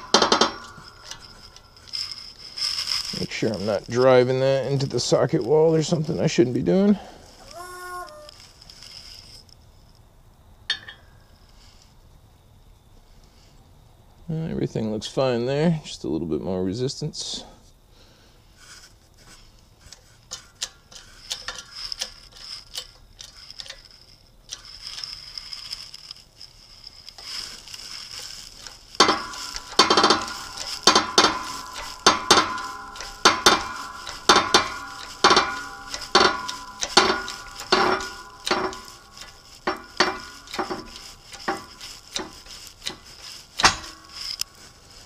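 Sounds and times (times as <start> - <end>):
hand press metallic clinking: 0.0 - 5.1, 28.3 - 44.8
ringing metal tone: 0.0 - 5.2, 28.3 - 45.0.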